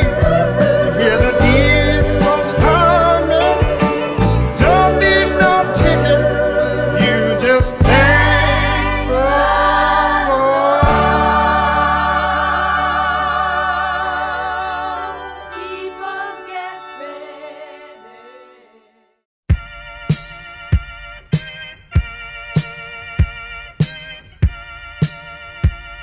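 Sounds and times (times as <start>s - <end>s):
group singing gospel song: 0.0s - 18.0s.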